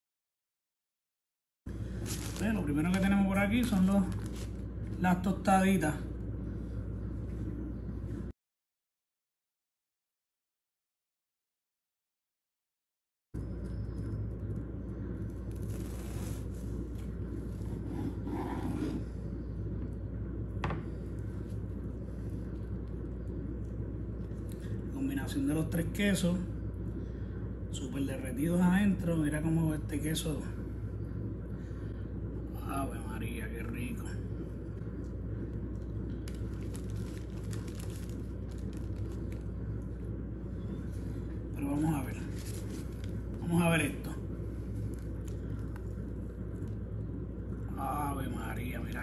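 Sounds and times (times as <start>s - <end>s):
steady low hum: 1.7s - 8.4s, 13.4s - 49.0s
paper crinkling: 1.9s - 5.0s, 15.4s - 17.8s, 35.8s - 39.9s, 42.1s - 43.3s.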